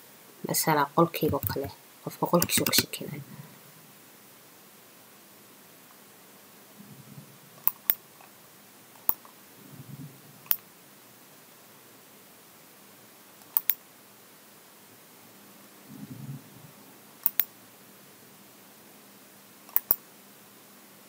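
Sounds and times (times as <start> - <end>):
computer mouse clicking: 1.2 - 1.7, 2.4 - 2.9, 7.6 - 8.0, 13.4 - 13.8, 17.2 - 17.5, 19.7 - 20.0.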